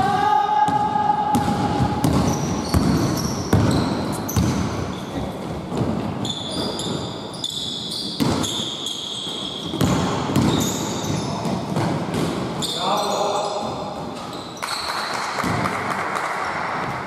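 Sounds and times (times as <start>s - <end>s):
basketball bouncing: 0.7s - 7.0s, 8.1s - 8.6s, 9.3s - 12.6s
sneaker squeaks: 1.4s - 15.1s.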